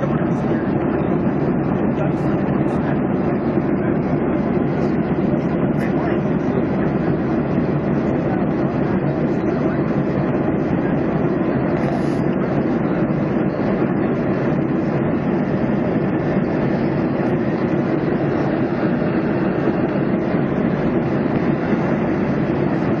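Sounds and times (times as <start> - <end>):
airliner cabin engine rush: 0.0 - 23.0.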